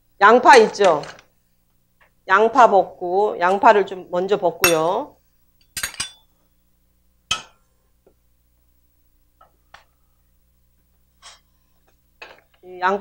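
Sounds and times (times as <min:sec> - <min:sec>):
utensil clinking against pan and bowl: 0:05.7 - 0:06.3.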